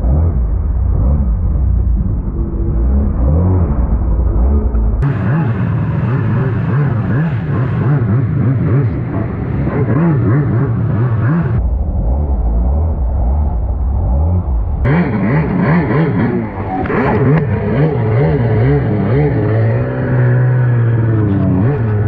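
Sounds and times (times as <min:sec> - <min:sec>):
jet ski engine revving: 0:02.4 - 0:11.6, 0:14.9 - 0:22.0.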